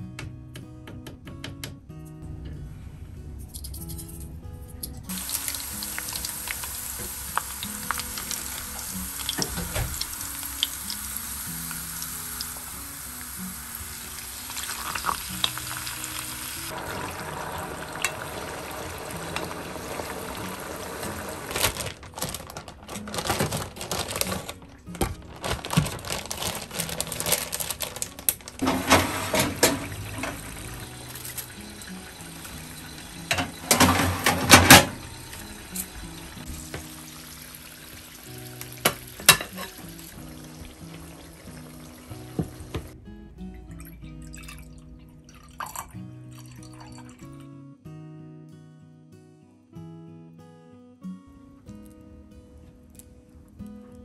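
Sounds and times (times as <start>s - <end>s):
soft background music: 0.0s - 54.0s
oil sizzling in a frying pan: 5.1s - 21.5s, 28.6s - 43.0s.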